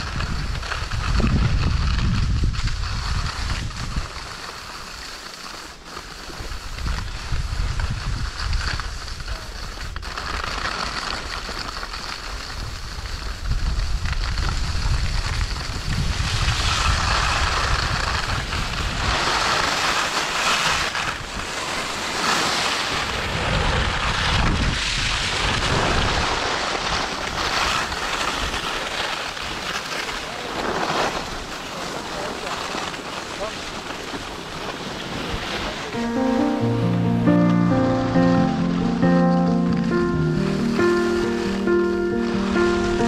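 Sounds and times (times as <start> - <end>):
wind buffeting microphone: 0.0 - 4.1, 6.8 - 9.2, 12.6 - 19.2, 23.0 - 26.3
skis scraping on snow: 0.0 - 43.0.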